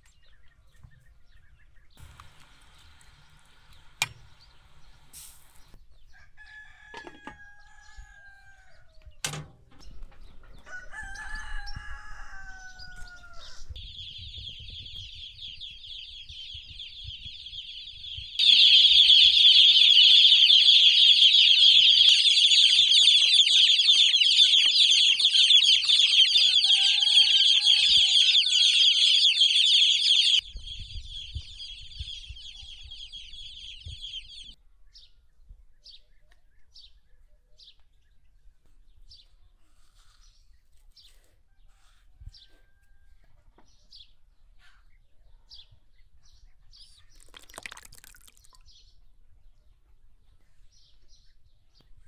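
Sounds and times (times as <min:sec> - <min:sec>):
rooster crowing: 0:06.1 - 0:09.0, 0:10.6 - 0:13.8, 0:18.4 - 0:30.4.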